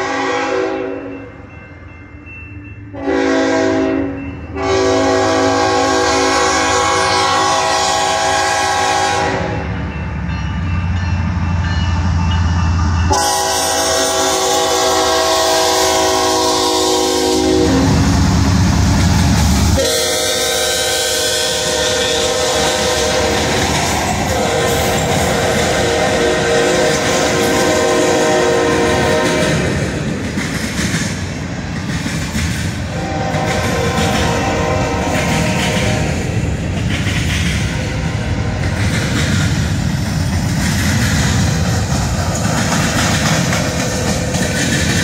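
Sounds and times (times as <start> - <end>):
locomotive air horn blasts: 0.0 - 1.1, 3.0 - 9.7, 13.1 - 18.1, 19.8 - 23.6, 24.3 - 29.7, 32.9 - 36.2
train rumbling past: 0.0 - 45.0.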